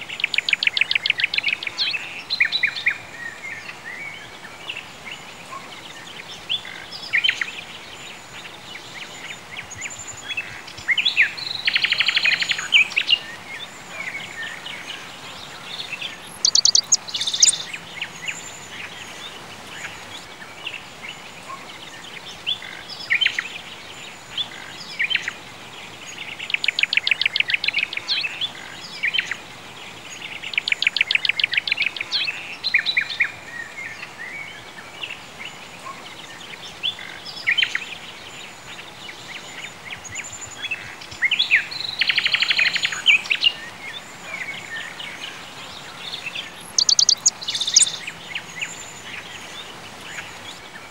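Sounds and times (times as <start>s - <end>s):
faint hiss: 0.0s - 50.9s
birds chirping and calling: 4.7s - 34.2s, 36.0s - 50.9s
bird trills: 16.3s - 17.7s, 46.7s - 48.1s.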